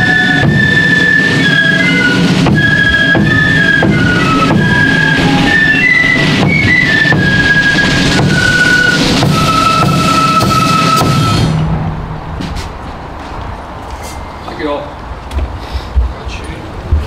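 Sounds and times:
flutes playing melody: 0.0s - 11.7s
side drums: 0.0s - 13.0s.

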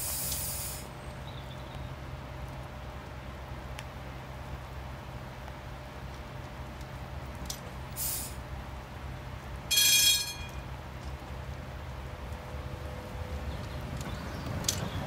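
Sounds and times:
high hiss: 0.0s - 1.0s, 8.0s - 8.4s
tram humming: 0.0s - 15.0s
loud high-pitched tone: 9.7s - 10.7s.

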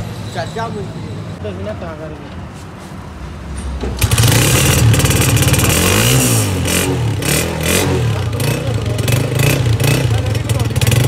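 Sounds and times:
motorcycle engine revving: 3.8s - 11.0s.

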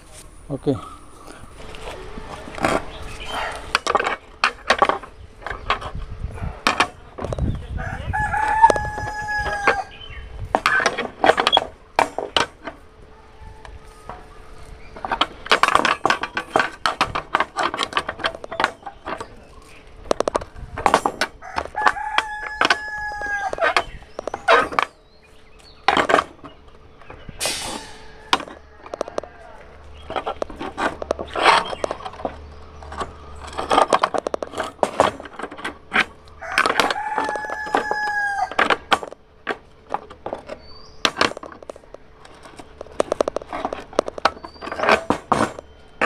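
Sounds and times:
rooster crowing: 7.8s - 10.0s, 21.4s - 23.8s, 36.4s - 38.6s.

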